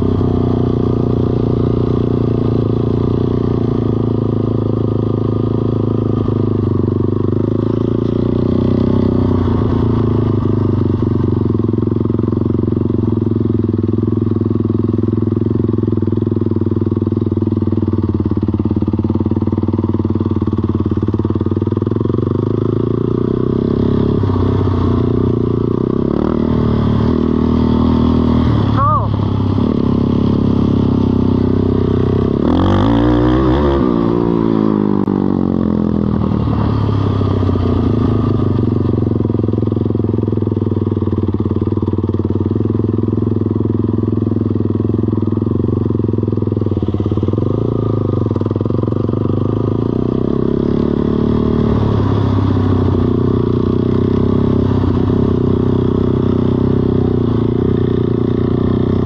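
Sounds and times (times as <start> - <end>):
small engine running: 26.5 - 31.1.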